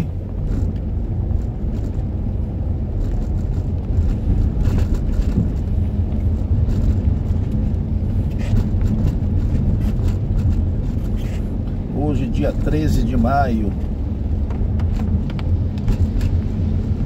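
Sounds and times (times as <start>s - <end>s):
car engine and tyres rumbling: 0.0s - 17.0s.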